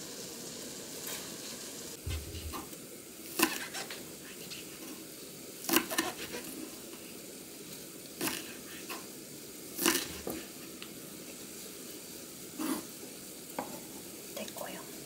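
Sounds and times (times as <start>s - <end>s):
knife slicing on wooden board: 2.1s - 2.7s, 3.4s - 4.0s, 5.7s - 6.5s.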